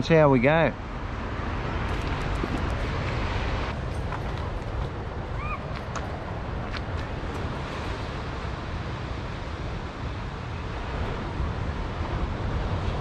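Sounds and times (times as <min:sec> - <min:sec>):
wind buffeting microphone: 0:01.1 - 0:13.0.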